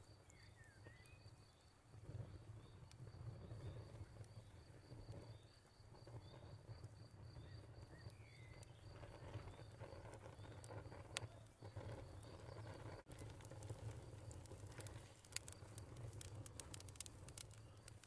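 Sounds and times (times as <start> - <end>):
insect chirping: 0.0 - 13.0.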